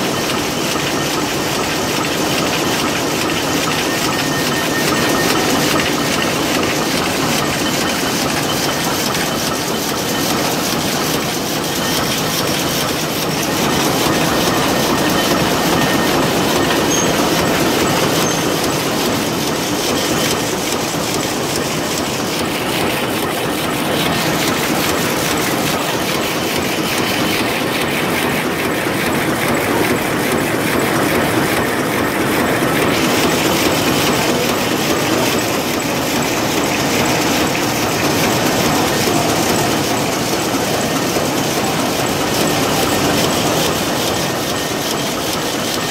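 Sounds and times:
loom mechanical clatter: 0:00.0 - 0:45.9.

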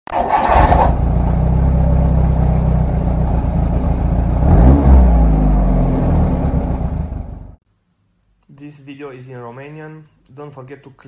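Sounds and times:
car engine idling and revving: 0:00.2 - 0:07.6.

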